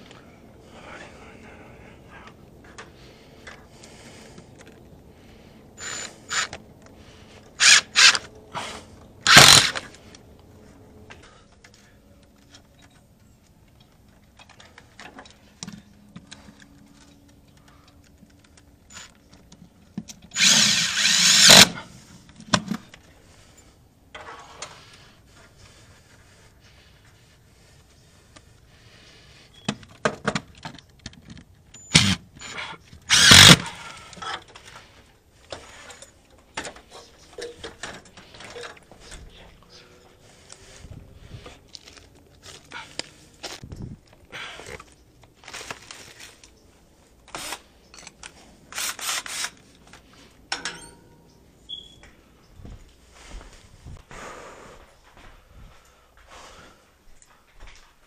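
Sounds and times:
cordless drill driving screws: 5.8s - 6.6s, 7.6s - 8.3s, 9.3s - 9.8s, 20.3s - 21.8s, 31.9s - 32.5s, 33.1s - 33.8s, 47.3s - 47.7s, 48.7s - 49.6s.

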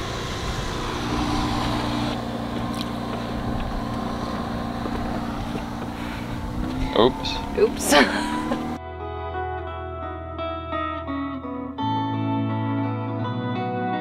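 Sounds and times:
boat engine humming: 0.0s - 8.8s.

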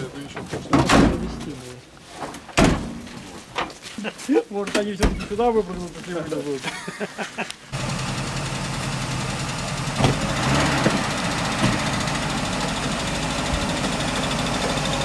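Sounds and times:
vehicle engine running at low revs: 7.8s - 15.0s.

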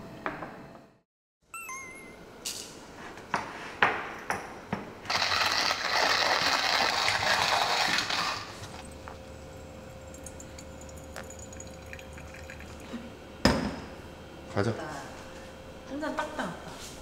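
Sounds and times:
coffee grinder grinding beans: 5.1s - 9.2s.

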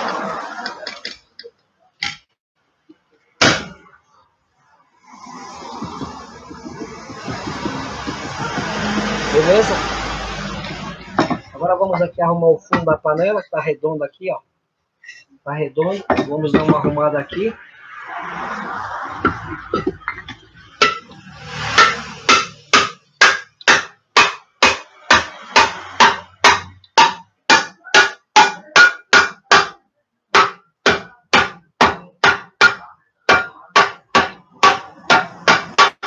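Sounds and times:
hammer striking wooden block: 3.4s - 3.8s, 5.4s - 12.1s, 12.7s - 13.0s, 16.0s - 17.4s, 19.2s - 36.0s.

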